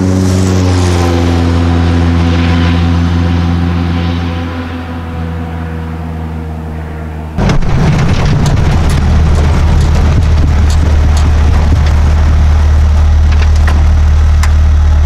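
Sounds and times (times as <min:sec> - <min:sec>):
car engine rumbling: 0:00.0 - 0:15.0
distant engine hum: 0:00.0 - 0:15.0.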